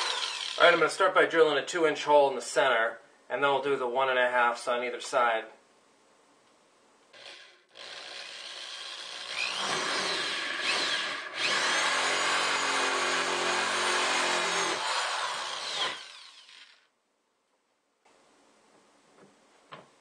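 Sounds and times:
electric drill cutting plastic: 0.0 - 0.8, 7.2 - 16.9.

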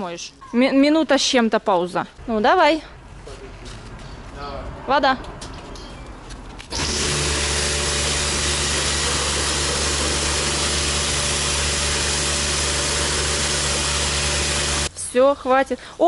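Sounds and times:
pressure washer water jet hissing: 6.7 - 14.9
pump hum: 6.7 - 14.9.

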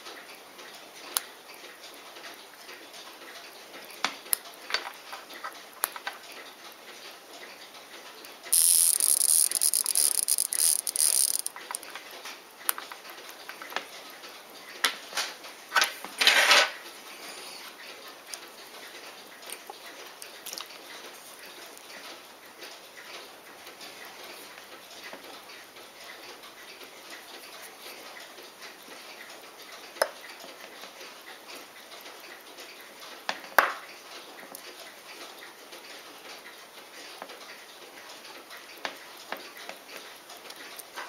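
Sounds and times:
alarm watch buzzing rattle: 8.5 - 11.9
small clicks of watch crown: 8.5 - 12.0.

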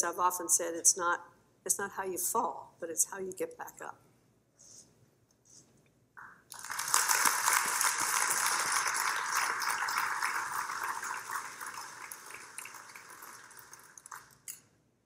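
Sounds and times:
audience applause: 6.5 - 14.4.

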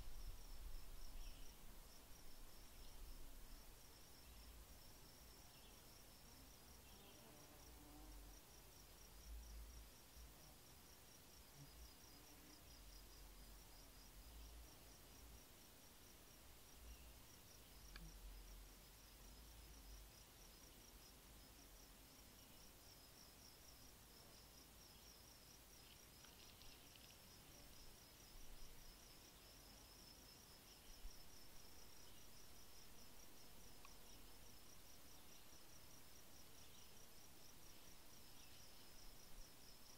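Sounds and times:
insect chirping: 0.0 - 39.9
outdoor background hiss: 0.0 - 39.9
faint tick: 17.9 - 18.1.

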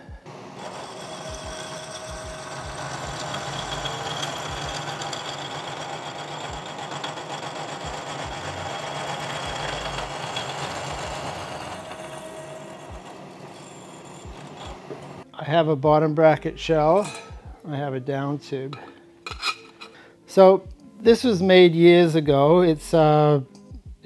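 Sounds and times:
milling machine hum: 0.0 - 15.2
hole saw cutting metal tube: 0.3 - 15.2.

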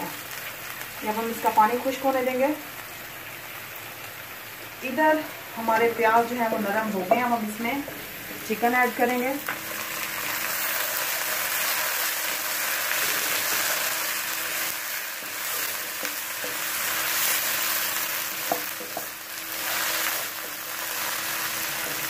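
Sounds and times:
chicken and onions sizzling in oil: 0.0 - 22.0.

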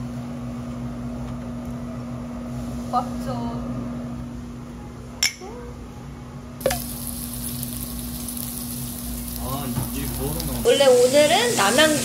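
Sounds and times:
steady low hum: 0.0 - 12.0
meat sizzling on grill: 6.6 - 12.0.

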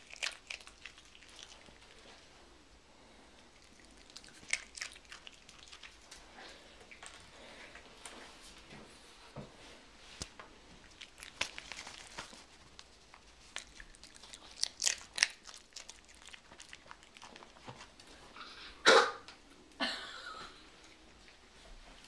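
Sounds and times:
dog crunching chips: 0.0 - 2.2, 3.5 - 6.3, 10.8 - 18.0.

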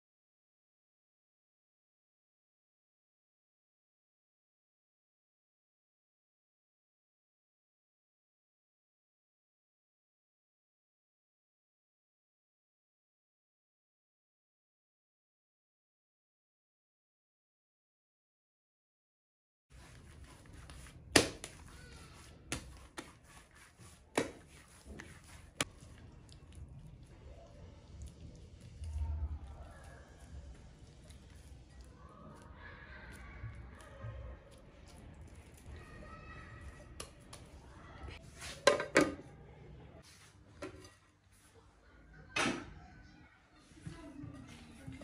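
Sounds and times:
soft handling rustle: 19.7 - 35.8
dough slapped onto mat: 20.8 - 21.7, 24.1 - 24.5.

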